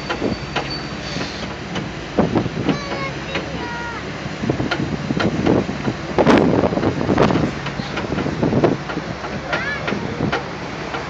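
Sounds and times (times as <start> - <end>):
boat motor running through water: 0.0 - 11.0
people's voices: 2.6 - 4.1, 9.2 - 11.0.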